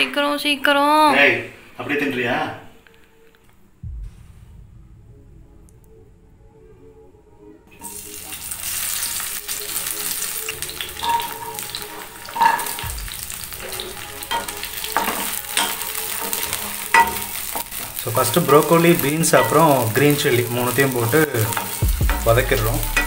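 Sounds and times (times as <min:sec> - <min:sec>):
vegetables sizzling in oil: 0:07.8 - 0:23.0
spatula scraping a pan: 0:10.3 - 0:21.8.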